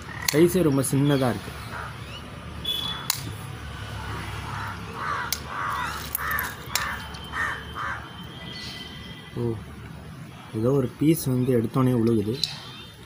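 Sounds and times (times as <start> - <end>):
crow cawing: 1.6 - 3.1, 4.1 - 9.2.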